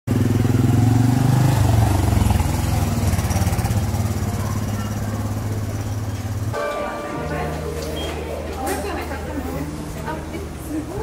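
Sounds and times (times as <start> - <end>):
vehicle engine running: 0.1 - 6.6.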